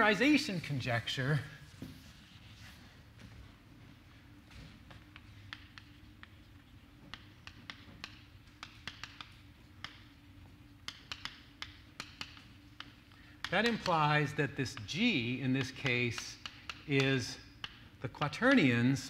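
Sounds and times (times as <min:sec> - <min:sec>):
chalk scratching: 0:01.6 - 0:02.9
chalk tapping on blackboard: 0:04.9 - 0:18.4.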